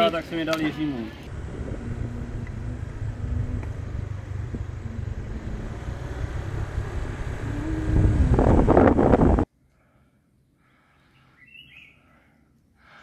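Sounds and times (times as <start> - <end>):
motorbike engine rumbling: 1.3 - 9.5
wind buffeting microphone: 1.3 - 9.5.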